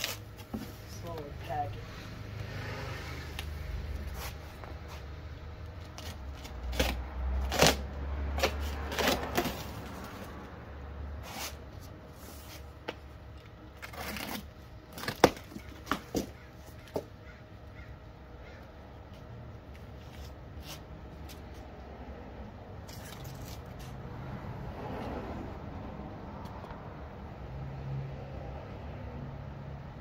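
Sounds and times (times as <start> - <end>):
cardboard box being cut open: 5.9 - 10.2, 13.8 - 16.3.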